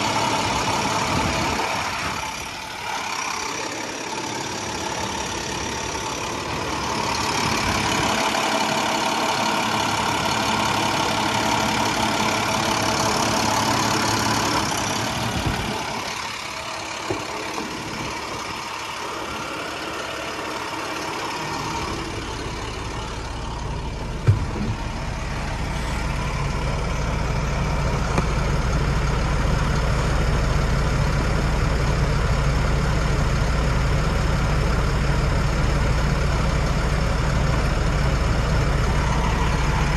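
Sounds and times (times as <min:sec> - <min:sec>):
truck engine idling: 0:00.0 - 0:39.9.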